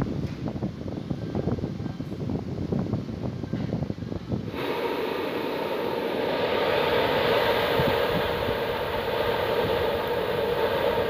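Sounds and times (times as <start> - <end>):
exhaust fan running: 1.6 - 11.0.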